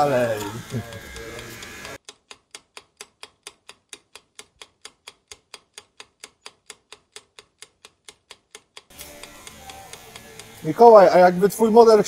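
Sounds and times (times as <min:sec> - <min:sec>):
clock ticking: 0:00.0 - 0:11.8.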